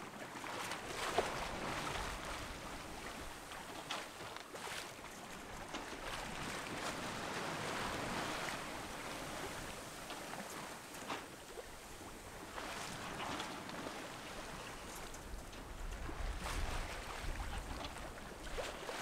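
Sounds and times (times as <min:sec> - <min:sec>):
water rushing along a hull: 0:00.0 - 0:19.0.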